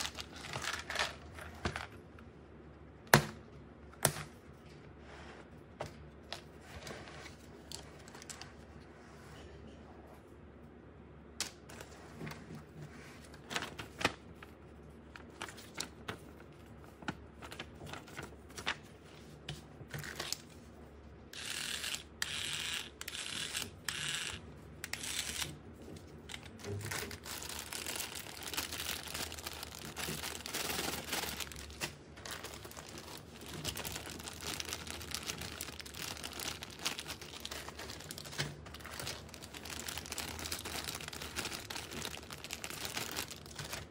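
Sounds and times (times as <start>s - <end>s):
packaging crinkling and tearing: 0.0s - 2.0s, 26.2s - 43.9s.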